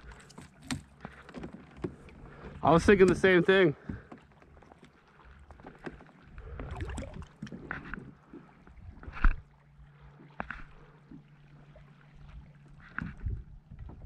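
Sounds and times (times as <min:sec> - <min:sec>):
gear knocking on kayak: 0:00.5 - 0:06.1.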